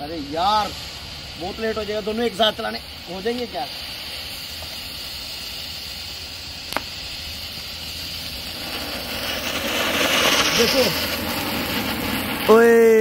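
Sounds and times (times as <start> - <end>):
firework fountain spraying sparks: 0.0 - 13.0
smoke cracker hissing: 0.0 - 13.0
sharp click: 6.7 - 6.9.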